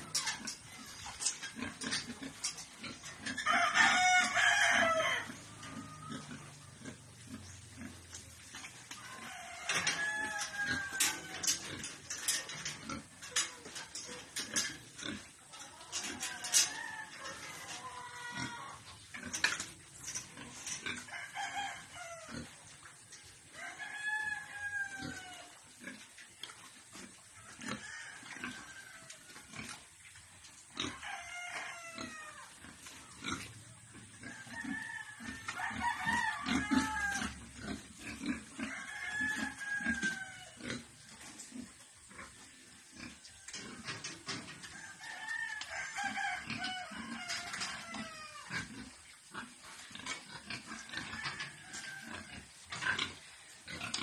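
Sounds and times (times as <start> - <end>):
piglets grunting and squealing: 0.0 - 8.2, 9.2 - 16.7, 17.4 - 21.1, 21.8 - 22.7, 24.8 - 26.2, 30.7 - 44.4, 45.9 - 54.0
rooster crowing: 3.4 - 6.3, 9.0 - 11.8, 16.0 - 18.8, 21.1 - 22.5, 23.6 - 25.5, 30.9 - 32.5, 34.2 - 37.5, 38.6 - 40.6, 44.6 - 48.6, 50.7 - 52.5.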